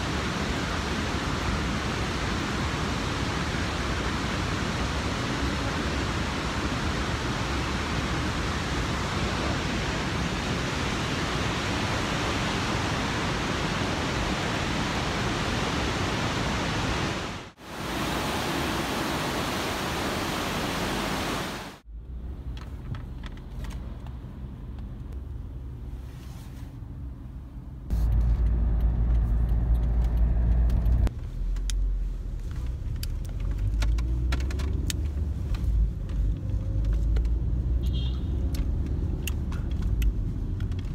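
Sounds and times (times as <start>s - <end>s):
river rushing through rocks: 0.0s - 21.8s
road traffic: 0.0s - 40.9s.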